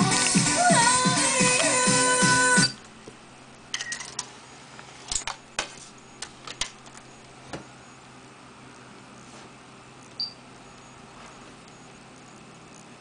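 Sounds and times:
music from car stereo: 0.0 - 2.8.

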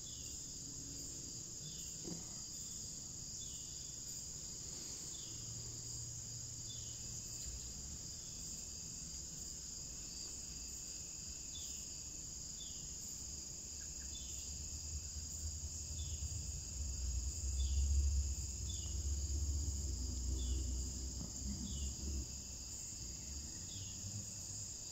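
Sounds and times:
high-pitched insect chorus: 0.0 - 24.9
low rumble: 14.6 - 24.6.

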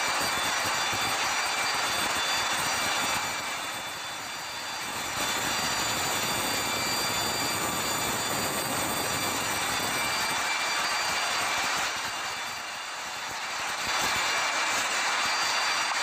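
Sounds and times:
high steady whining tones: 0.0 - 16.0.

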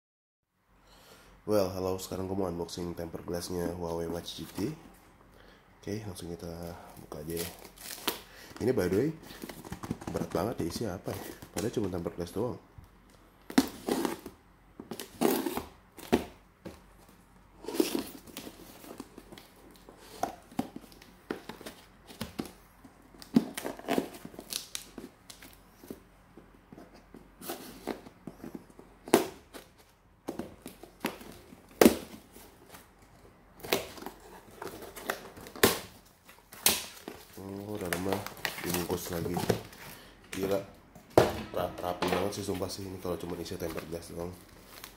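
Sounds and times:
tape and cardboard tearing: 13.5 - 14.3, 14.9 - 16.3, 23.2 - 25.6, 33.6 - 37.3.

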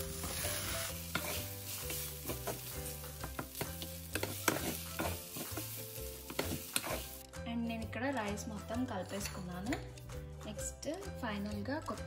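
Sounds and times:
rice sizzling in oil: 0.0 - 7.2
wooden spatula scraping a pan: 0.2 - 7.2.

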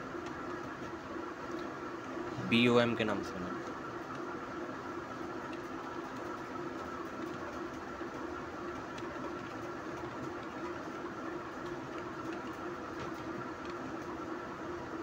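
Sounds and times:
machine hum: 0.0 - 15.0.

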